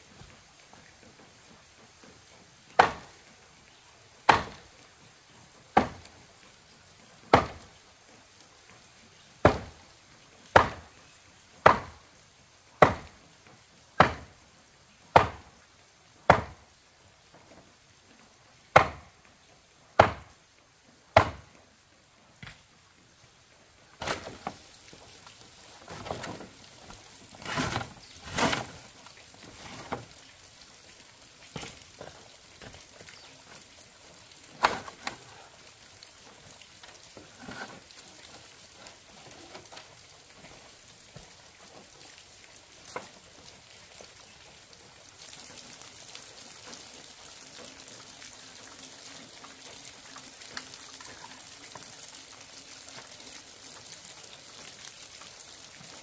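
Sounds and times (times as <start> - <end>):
hammer knocking on wooden post: 20.0 - 20.3
clattering and rustling: 25.8 - 30.2.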